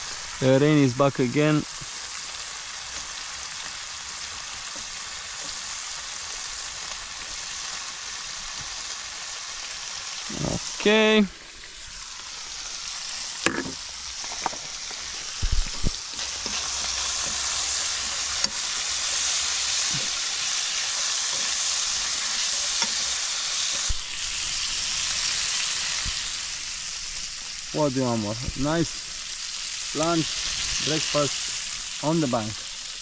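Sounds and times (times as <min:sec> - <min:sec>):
food sizzling in a frying pan: 0:00.0 - 0:33.0
fork knocking against pan: 0:13.5 - 0:13.8.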